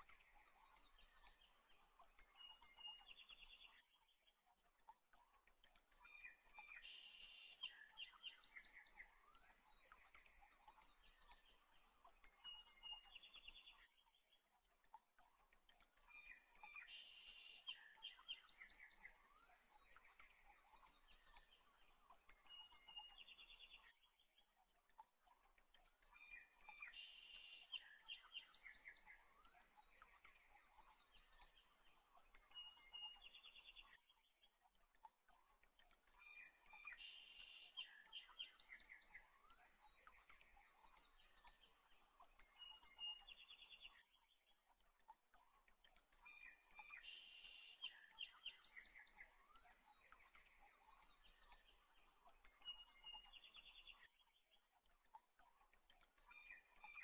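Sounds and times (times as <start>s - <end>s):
faint bird chirping: 0.0s - 57.0s
bird trill of repeated notes: 35.3s - 57.0s.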